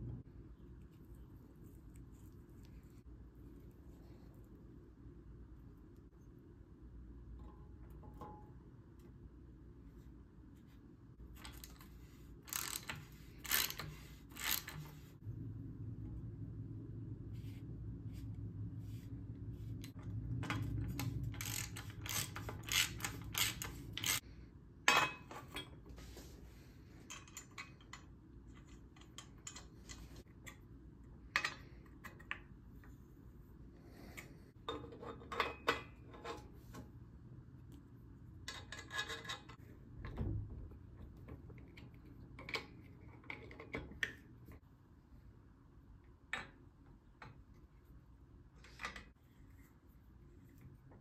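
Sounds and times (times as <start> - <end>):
metal clicks and rattles of bicycle parts: 11.3 - 15.1, 19.9 - 24.2, 27.0 - 30.6
low hum: 15.1 - 22.5.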